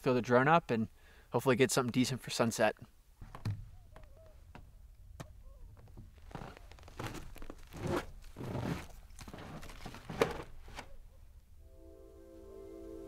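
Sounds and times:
footsteps crunching through snow: 0:06.0 - 0:10.9.

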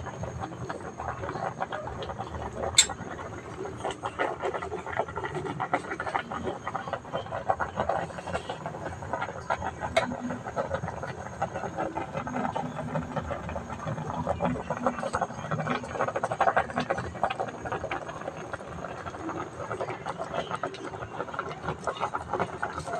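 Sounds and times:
water boiling in metal pot: 0:00.0 - 0:22.9.

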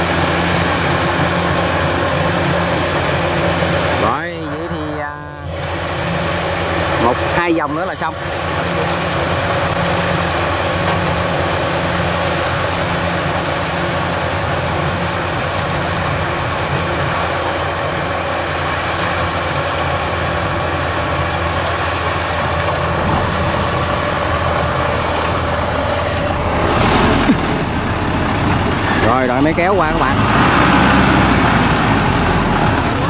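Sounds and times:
combine harvester engine hum: 0:00.0 - 0:33.0
threshing rushing: 0:08.4 - 0:32.3.

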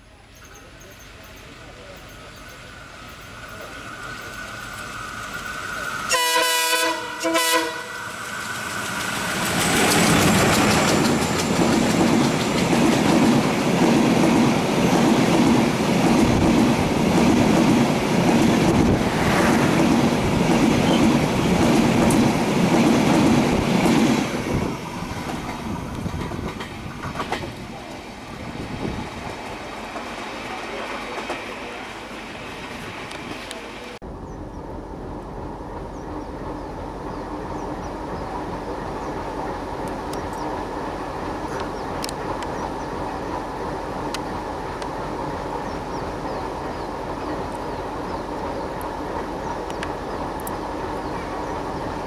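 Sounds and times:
locomotive multi-tone air horn: 0:06.1 - 0:08.2
train wheels clattering over rail joints: 0:08.5 - 0:19.0, 0:19.6 - 0:28.0.

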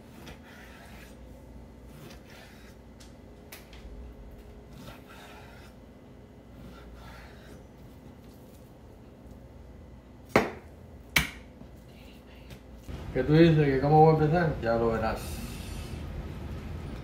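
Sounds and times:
knife scraping cutting board: 0:00.0 - 0:01.2, 0:01.8 - 0:02.8, 0:04.7 - 0:05.8.

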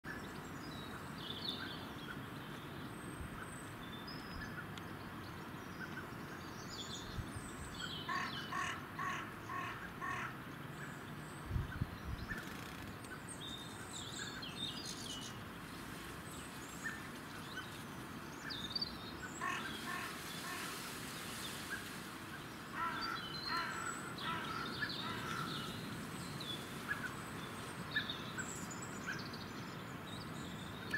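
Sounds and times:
birds chirping: 0:00.1 - 0:30.9
harsh repeated bird calls: 0:22.7 - 0:25.9.

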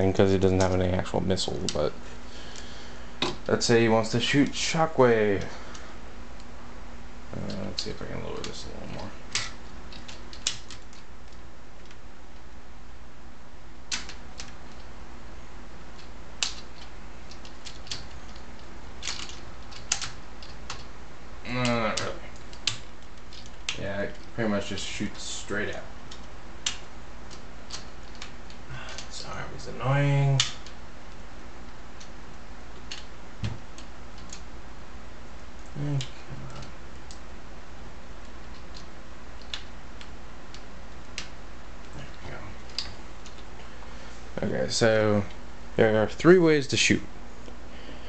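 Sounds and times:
steady low hum: 0:00.0 - 0:48.0
plastic toy parts clicking: 0:09.3 - 0:12.0, 0:19.0 - 0:20.9
person grunting: 0:21.4 - 0:22.3, 0:35.8 - 0:36.5.

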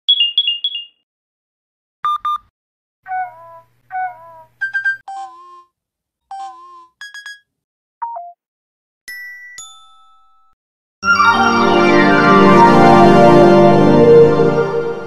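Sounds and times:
electronic beep patterns: 0:00.1 - 0:01.0, 0:04.6 - 0:05.6
loud organ-like music: 0:11.0 - 0:15.0.

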